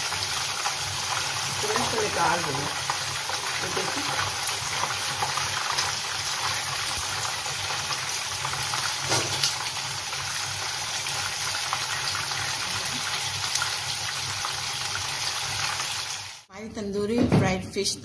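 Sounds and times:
fish sizzling in hot oil: 0.0 - 16.5.

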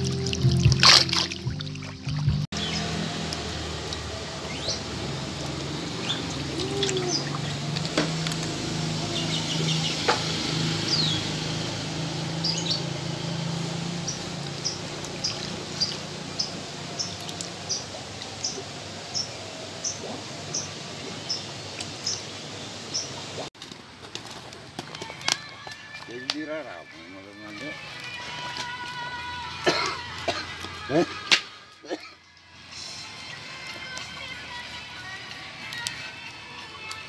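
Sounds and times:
running water: 0.0 - 23.5, 25.0 - 32.0, 32.6 - 37.0
small birds chirping: 1.7 - 23.5.

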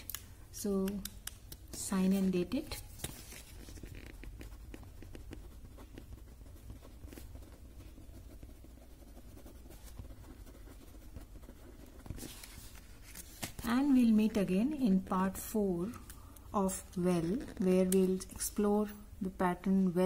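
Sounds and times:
pen scratching on paper: 2.1 - 12.9.

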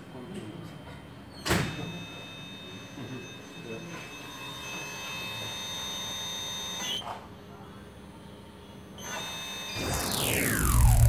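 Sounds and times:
servo motor high-pitched whine: 9.8 - 11.0.

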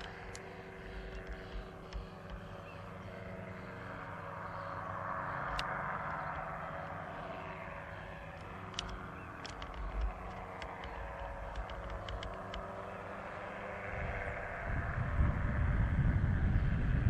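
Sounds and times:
aircraft engine and propeller: 0.0 - 17.0.

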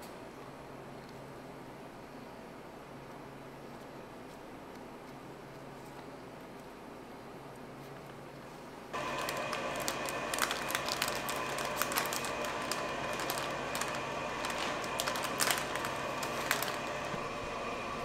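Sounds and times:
steady background hum: 0.0 - 18.0
plastic sheet crinkling: 8.9 - 17.2.

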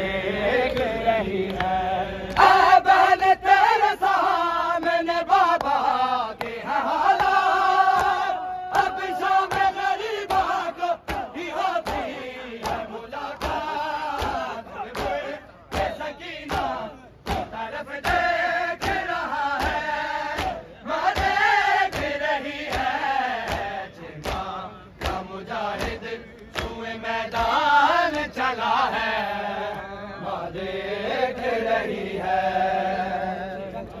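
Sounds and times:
men chanting: 0.0 - 34.0
chest beating slaps: 7.2 - 27.6.

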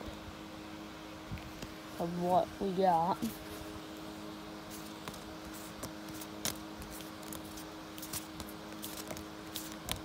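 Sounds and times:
steady low hum: 0.0 - 10.0
trading cards clicking and flicking: 4.8 - 10.0.

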